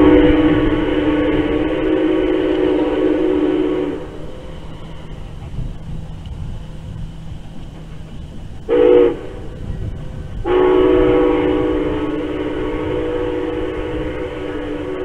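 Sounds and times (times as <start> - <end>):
steam locomotive whistle blasts: 0.0 - 5.3, 8.7 - 15.0.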